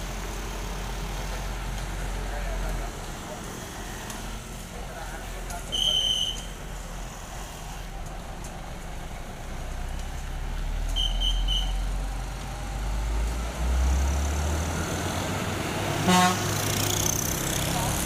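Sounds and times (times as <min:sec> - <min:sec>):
diesel truck engine rumble: 0:00.0 - 0:18.0
passing road traffic: 0:00.0 - 0:18.0
short horn toot: 0:16.0 - 0:16.4.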